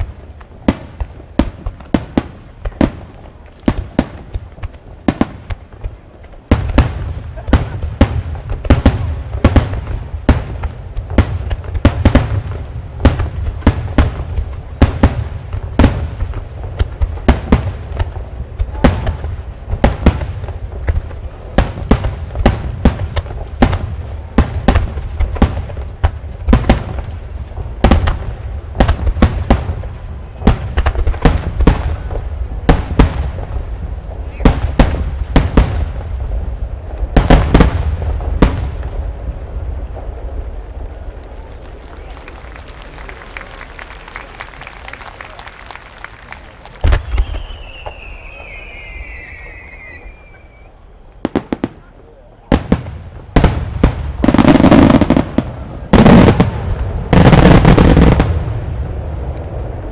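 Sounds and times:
firework shells bursting: 40.4s - 51.8s.

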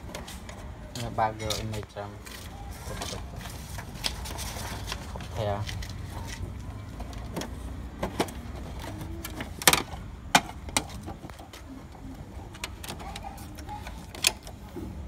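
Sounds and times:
clicks and knocks on plastic parts: 5.2s - 15.0s.

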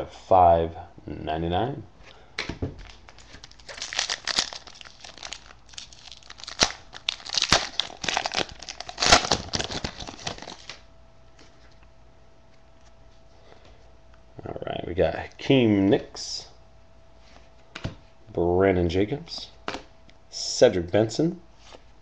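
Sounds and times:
card pack wrapper crinkling and tearing: 2.8s - 10.8s.

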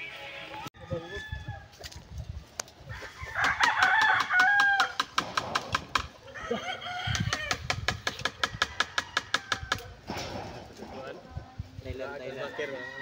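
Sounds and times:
rooster crowing: 0.8s - 1.7s, 2.9s - 5.0s, 6.2s - 7.6s, 8.4s - 10.0s, 12.4s - 13.0s.

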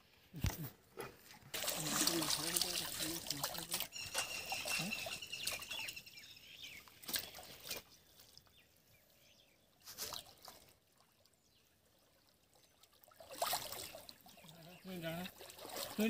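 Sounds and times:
water sloshing and splashing: 1.1s - 8.9s, 9.8s - 16.0s
faint bird chirps: 3.8s - 10.4s.

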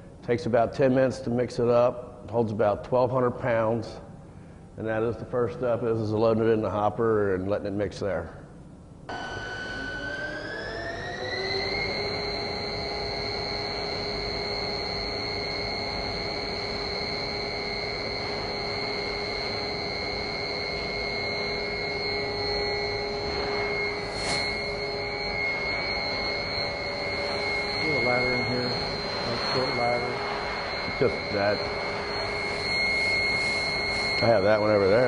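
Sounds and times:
electric mixer motor whine: 9.1s - 35.0s.

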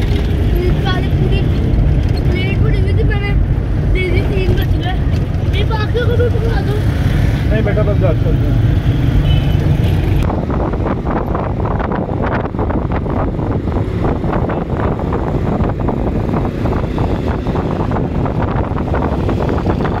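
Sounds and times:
car and road rumble: 0.0s - 20.0s
wind buffeting microphone: 9.7s - 20.0s.

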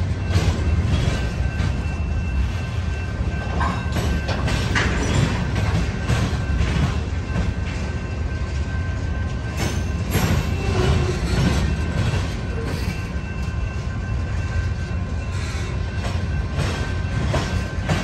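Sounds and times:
wheels clacking over rail joints: 0.0s - 8.1s, 8.8s - 14.5s, 15.3s - 18.0s
freight train rumbling: 0.0s - 18.0s.

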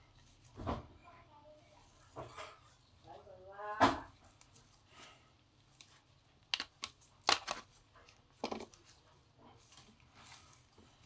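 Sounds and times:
soft handling noise: 4.0s - 11.0s
plastic clicks and snaps: 5.8s - 8.8s.

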